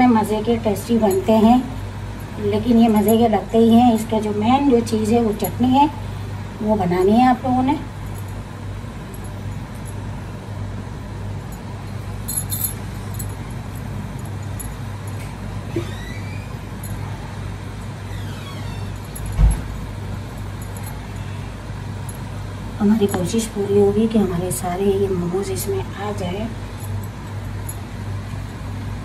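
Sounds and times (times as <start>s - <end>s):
low hum and rumble: 0.0s - 29.0s
light metal clinks: 11.5s - 15.4s.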